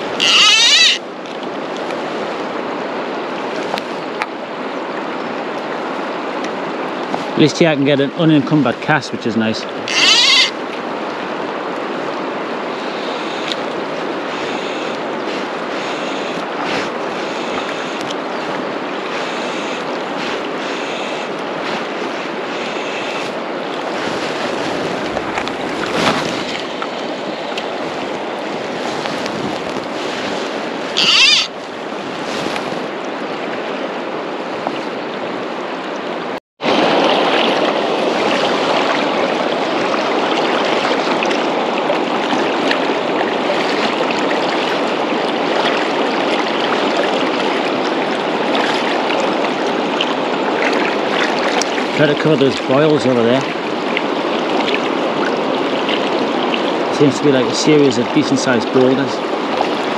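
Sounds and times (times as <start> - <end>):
fast-flowing river rushing: 0.0 - 59.9
fly line swishing: 9.9 - 10.6.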